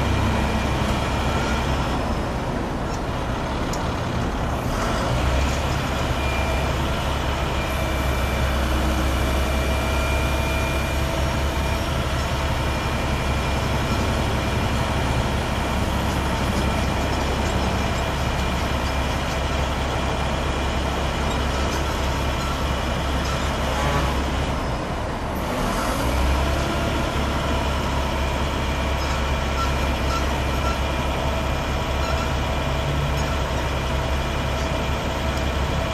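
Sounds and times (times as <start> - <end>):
diesel truck engine running: 0.0 - 35.9.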